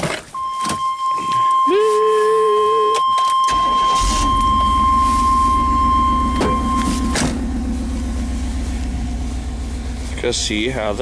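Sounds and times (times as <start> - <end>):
high warning chime: 0.4 - 7.3
truck engine idling: 3.5 - 11.0.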